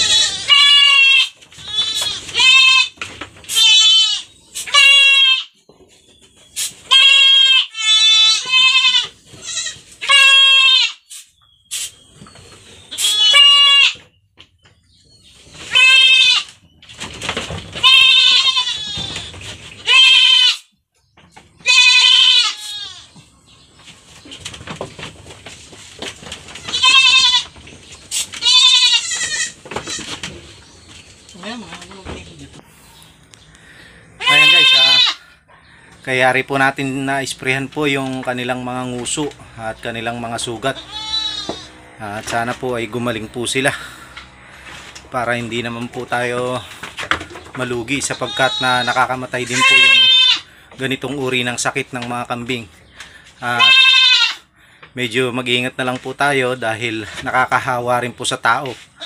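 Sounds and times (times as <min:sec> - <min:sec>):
goats bleating: 0:00.0 - 0:05.6, 0:06.9 - 0:11.0, 0:12.9 - 0:14.0, 0:15.6 - 0:16.6, 0:17.8 - 0:20.7, 0:21.6 - 0:23.2, 0:26.5 - 0:27.6, 0:28.2 - 0:30.2, 0:34.2 - 0:35.4, 0:40.3 - 0:42.3, 0:48.0 - 0:50.6, 0:53.4 - 0:54.5
knocks and scuffling: 0:01.3 - 0:03.8, 0:13.9 - 0:20.0, 0:23.1 - 0:33.5, 0:44.6 - 0:49.8.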